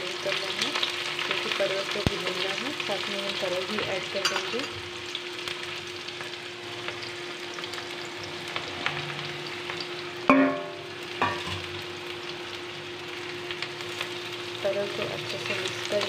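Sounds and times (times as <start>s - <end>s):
onions sizzling in oil: 0.0s - 16.0s
metallic clanks on pan: 4.2s - 4.8s, 10.3s - 11.6s.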